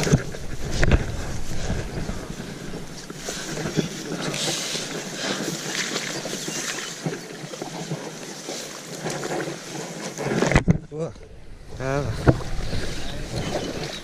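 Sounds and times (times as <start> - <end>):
sleeve brushing through reeds: 0.0 - 10.5
grass rustling: 0.0 - 14.0.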